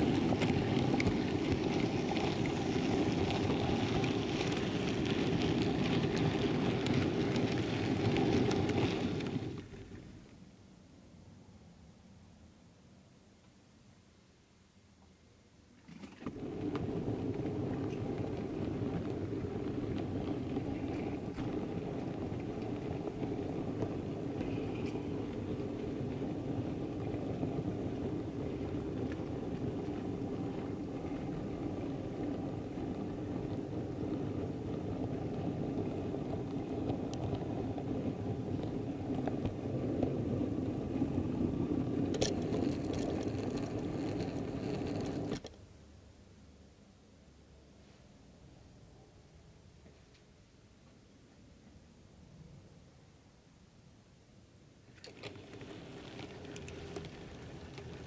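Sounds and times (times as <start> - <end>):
train motor hum: 0.0 - 9.7, 16.3 - 45.5, 55.0 - 58.0
model train rolling on track: 0.0 - 10.3, 16.2 - 45.6, 54.9 - 58.0.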